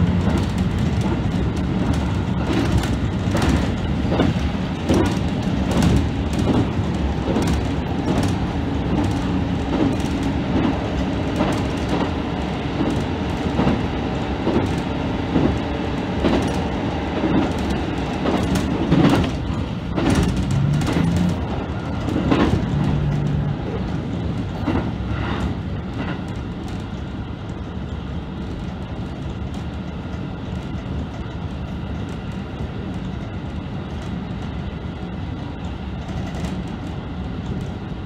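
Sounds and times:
railcar running rumble: 0.0s - 38.0s
wheels clicking over rail joints: 0.0s - 38.0s.

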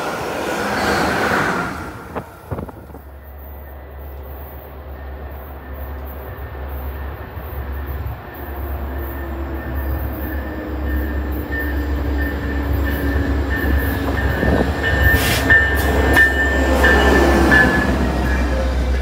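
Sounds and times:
train rumbling: 0.0s - 19.0s
high wheel squeal: 0.6s - 2.0s.

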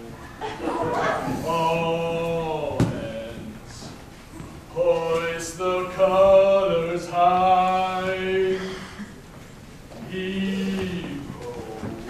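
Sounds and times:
low male chanting: 1.4s - 3.9s, 10.0s - 12.0s.

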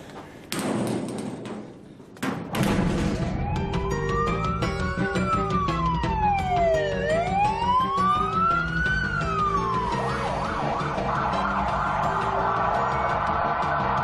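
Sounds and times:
background music: 2.6s - 14.0s
police siren wailing and yelping: 3.3s - 14.0s.

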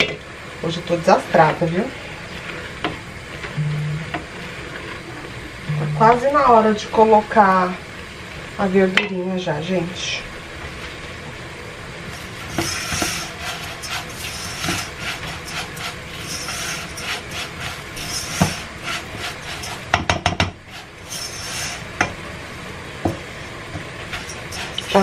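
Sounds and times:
spatula scraping rice in pan: 12.1s - 20.0s, 20.6s - 22.0s, 24.0s - 25.0s.

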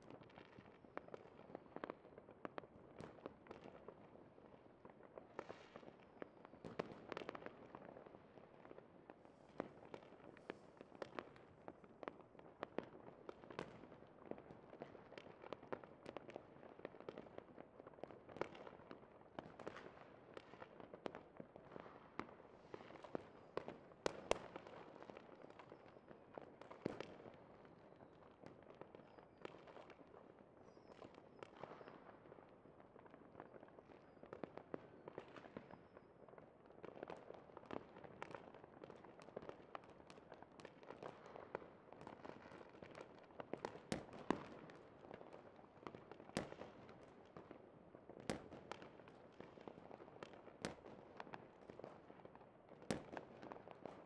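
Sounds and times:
fireworks popping and cracking: 36.8s - 47.6s.

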